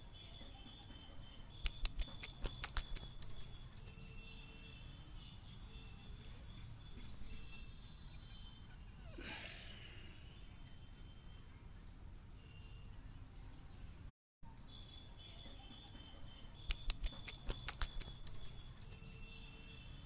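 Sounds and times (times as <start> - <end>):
birds chirping: 0.0 - 11.8, 14.8 - 19.4
sharp clicks: 1.6 - 3.6, 16.6 - 18.7.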